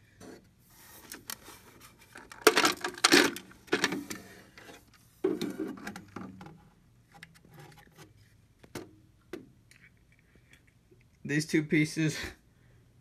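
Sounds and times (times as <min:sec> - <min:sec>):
plastic clattering and scraping: 0:00.2 - 0:10.0.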